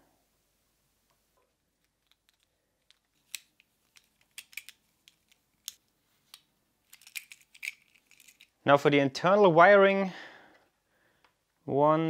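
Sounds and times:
clicks of small plastic parts: 0:01.8 - 0:08.5.

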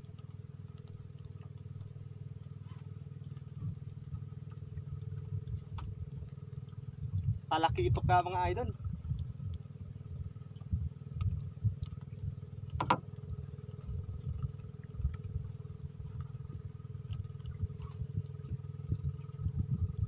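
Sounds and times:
motor hum: 0:00.0 - 0:20.0
wind rumbling on microphone: 0:03.5 - 0:20.0.

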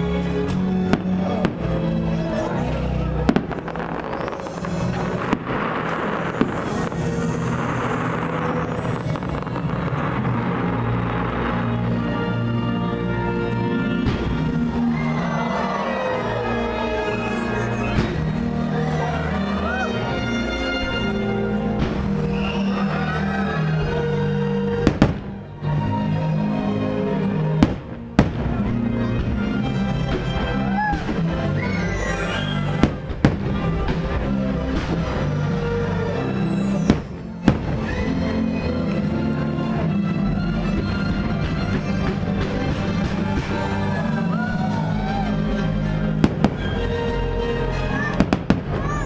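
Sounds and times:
music: 0:00.0 - 0:49.0
fireworks bursting: 0:03.0 - 0:12.4, 0:13.7 - 0:18.5, 0:24.7 - 0:25.5, 0:27.6 - 0:29.4, 0:32.0 - 0:35.4, 0:36.2 - 0:38.1, 0:46.2 - 0:46.8, 0:48.1 - 0:49.0.

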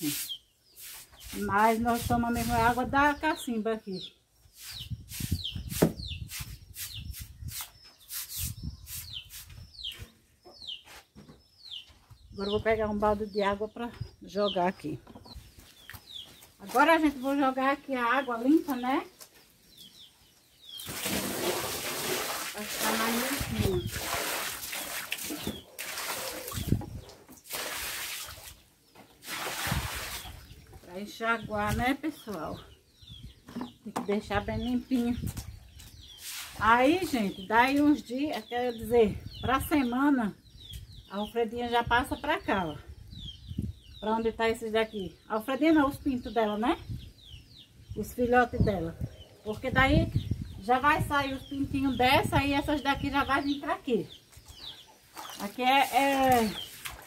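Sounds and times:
broom scrubbing wet floor: 0:00.0 - 0:02.9
water splashing across floor: 0:20.9 - 0:26.7, 0:29.2 - 0:30.4, 0:55.1 - 0:57.0.

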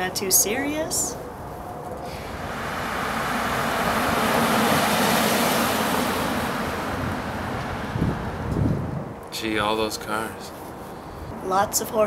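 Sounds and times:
car driving past: 0:02.0 - 0:09.9.

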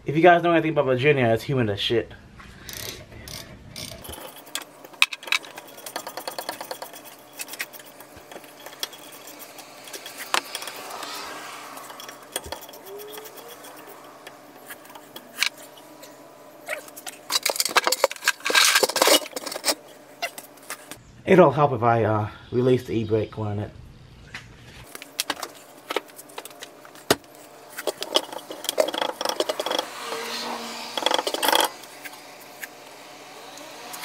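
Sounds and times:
hand ratchet clicking: 0:02.6 - 0:15.5, 0:27.8 - 0:30.0, 0:30.9 - 0:32.7
metal tools clinking: 0:16.7 - 0:19.8, 0:27.7 - 0:29.9.

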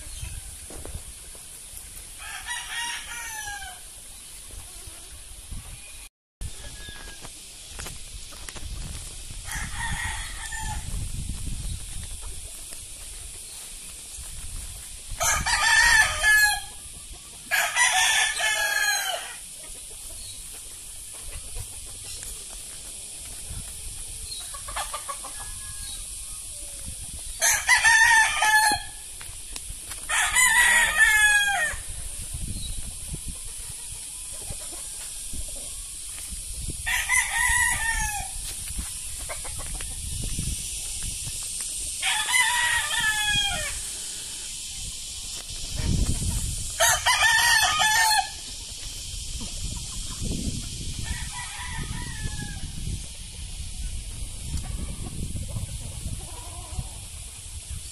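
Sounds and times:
roosters crowing: 0:02.0 - 0:05.3, 0:09.3 - 0:11.2, 0:13.5 - 0:20.3, 0:24.2 - 0:29.3, 0:29.9 - 0:32.7, 0:36.7 - 0:40.2, 0:41.8 - 0:44.8, 0:45.5 - 0:49.3, 0:50.7 - 0:53.0, 0:54.7 - 0:57.2.

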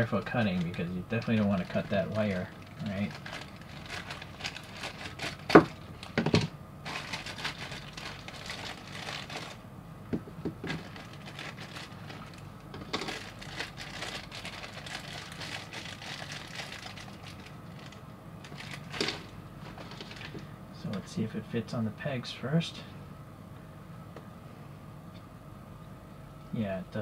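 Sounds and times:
plastic bag crinkling: 0:00.0 - 0:09.6, 0:10.6 - 0:20.5.

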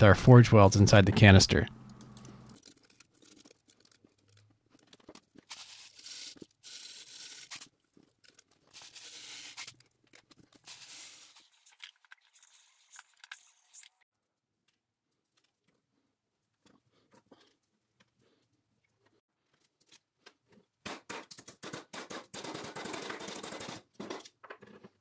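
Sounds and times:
paper crinkling and scraping: 0:02.5 - 0:14.0.

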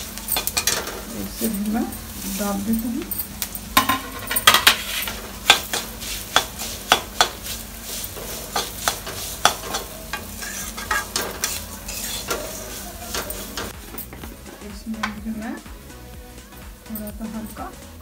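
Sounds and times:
oil sizzling: 0:00.0 - 0:18.0
spatula scraping a metal pan: 0:04.4 - 0:07.3, 0:07.9 - 0:13.8.

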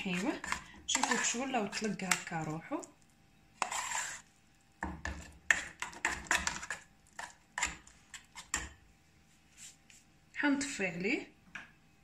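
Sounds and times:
metal spoon scraping saucepan: 0:00.0 - 0:02.5, 0:03.6 - 0:04.3.

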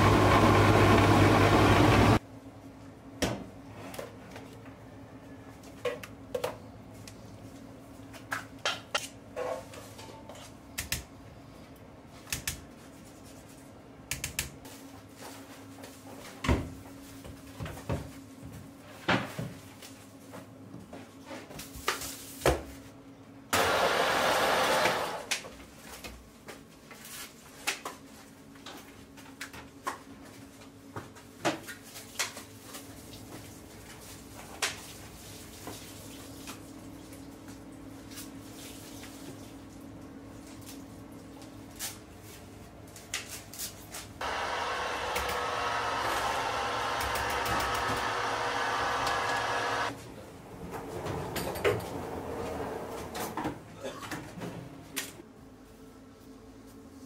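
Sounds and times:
food processor motor whirring: 0:00.0 - 0:02.2, 0:23.6 - 0:25.3, 0:44.2 - 0:50.0.

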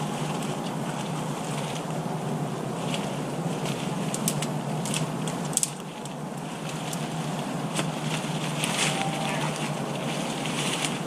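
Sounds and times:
steady rain: 0:00.0 - 0:11.0
wind: 0:00.0 - 0:11.0.

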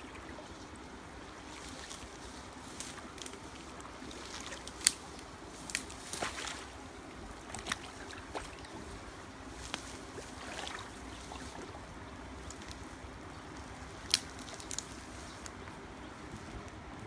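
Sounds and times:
water sloshing around wading person: 0:00.0 - 0:16.6
sharp splashes: 0:05.7 - 0:06.8, 0:10.1 - 0:11.8.

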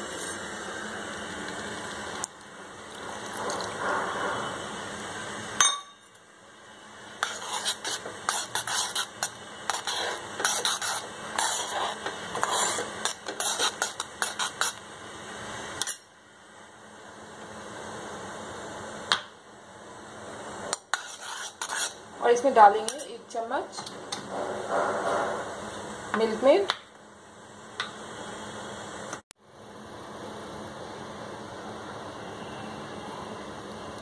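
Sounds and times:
spoon scraping a saucepan: 0:07.2 - 0:14.8, 0:20.8 - 0:22.0.

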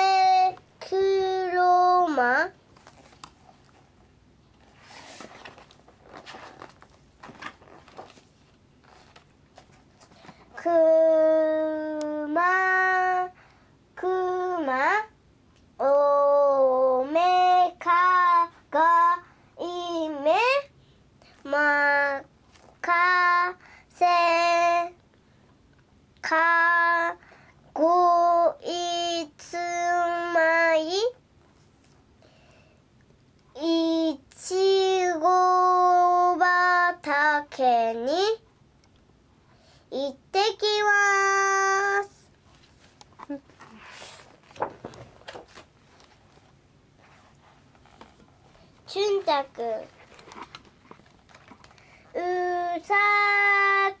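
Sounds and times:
girl reading in sing-song chant: 0:00.0 - 0:54.0
book pages turning: 0:02.7 - 0:03.9, 0:04.5 - 0:10.5, 0:42.5 - 0:52.1.

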